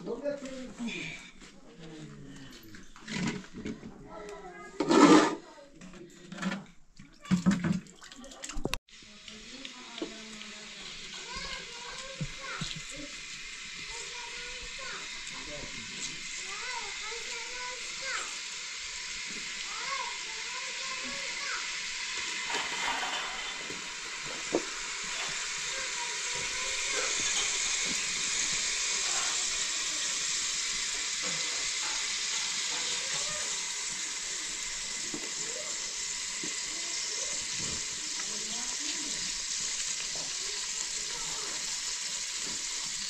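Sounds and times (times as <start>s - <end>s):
water rushing hiss: 8.9s - 43.0s.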